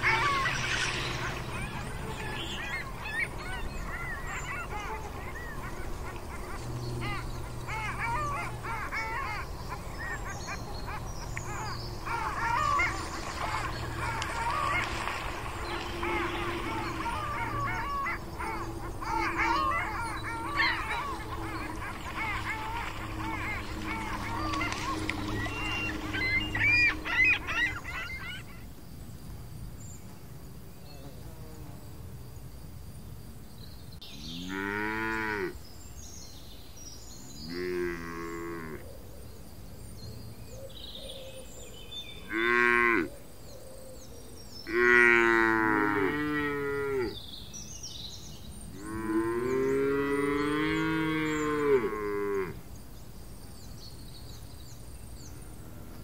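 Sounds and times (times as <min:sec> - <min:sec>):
cattle mooing: 0:44.7 - 0:47.2, 0:48.8 - 0:52.6.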